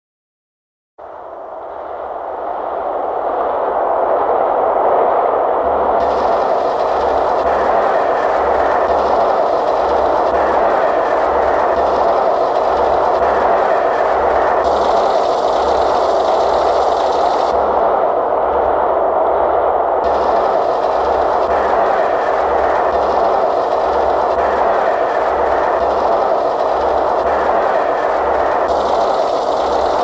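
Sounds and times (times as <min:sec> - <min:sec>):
dense rushing noise: 0:01.8 - 0:30.0
hiss: 0:06.0 - 0:17.6.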